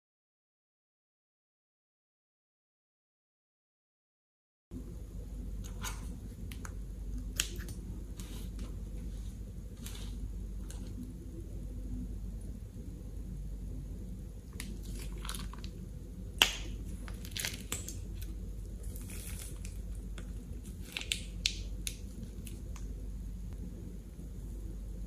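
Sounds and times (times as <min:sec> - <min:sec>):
plastic piping bag crinkling and squelching: 0:09.8 - 0:11.2, 0:14.4 - 0:23.0.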